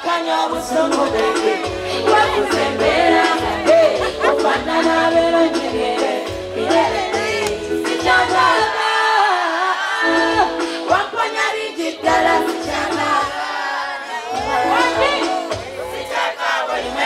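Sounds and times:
woman singing: 0:00.0 - 0:13.6, 0:14.2 - 0:15.6
backing track with bass beat: 0:00.5 - 0:08.7, 0:12.0 - 0:13.5, 0:14.3 - 0:17.0.

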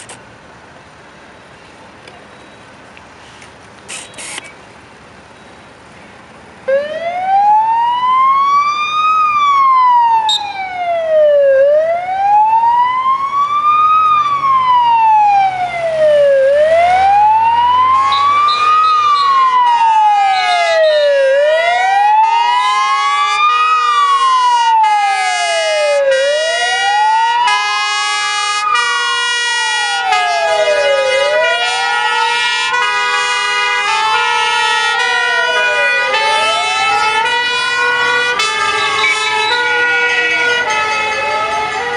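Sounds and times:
siren wailing: 0:06.7 - 0:41.9
two-tone horns: 0:17.9 - 0:21.0, 0:22.2 - 0:41.9.

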